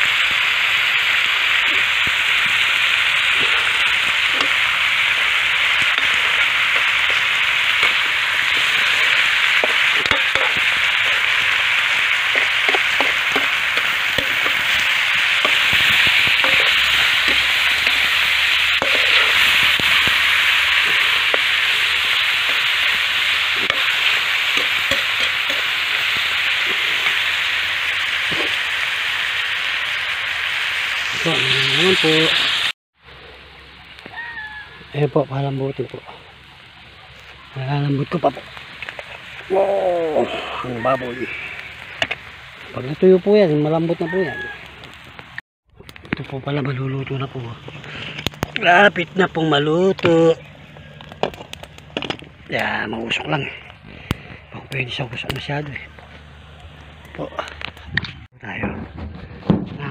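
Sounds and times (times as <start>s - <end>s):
meat sizzling in a pan: 0.0s - 45.4s.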